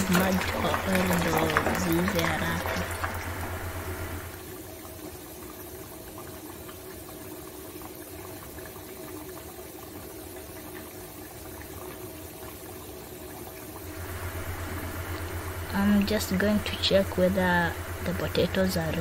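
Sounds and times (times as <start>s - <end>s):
low hum: 0.0s - 4.4s, 13.8s - 19.0s
potatoes sizzling in hot oil: 0.0s - 4.5s, 13.8s - 19.0s.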